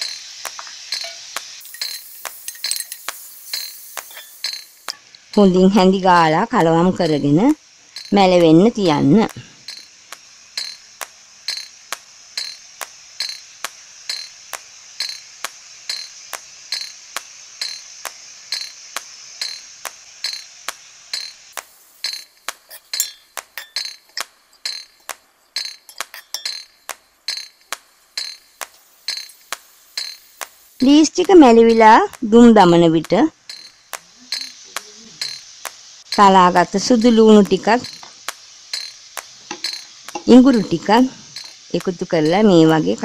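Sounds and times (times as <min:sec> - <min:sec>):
leeks frying hiss: 0:00.0 - 0:43.0
spoon clinking against a pot: 0:22.1 - 0:25.0, 0:25.6 - 0:27.6.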